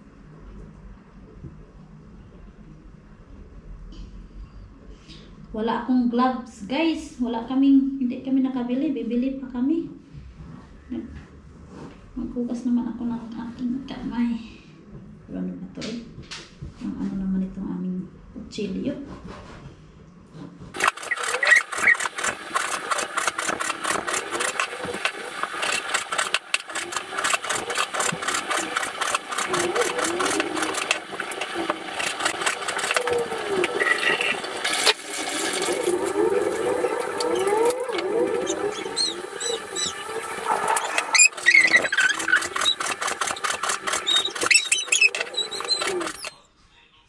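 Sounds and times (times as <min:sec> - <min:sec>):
squeaky chirps: 0:20.8 - 0:22.1, 0:38.4 - 0:42.8, 0:44.0 - 0:46.4.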